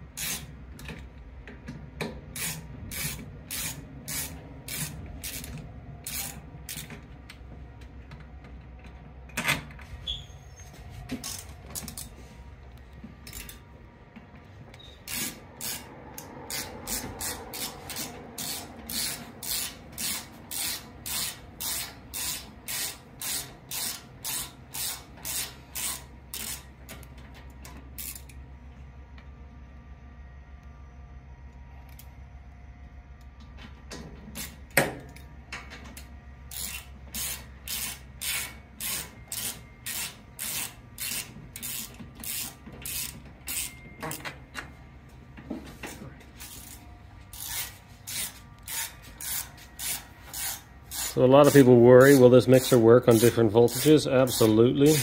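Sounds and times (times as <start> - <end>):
ratchet wrench rasping: 0.2 - 0.9, 2.3 - 6.9, 13.2 - 13.6, 14.8 - 26.7, 28.0 - 28.4, 36.5 - 43.8, 46.4 - 55.0.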